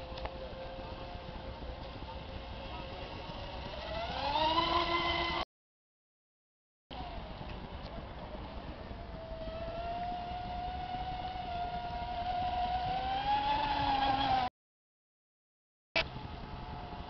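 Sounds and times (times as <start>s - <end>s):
model speedboat motor whining: 0.0s - 5.4s, 8.9s - 14.5s.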